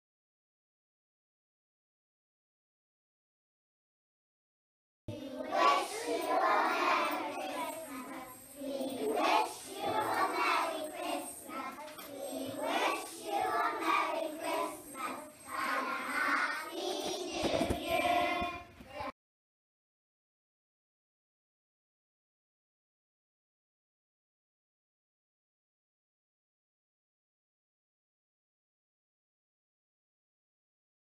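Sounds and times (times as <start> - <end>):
young children singing: 5.1 - 19.1.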